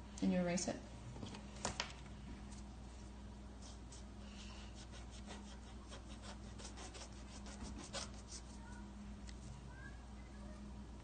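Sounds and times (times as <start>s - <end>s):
eraser rubbing on paper: 4.7s - 8.6s.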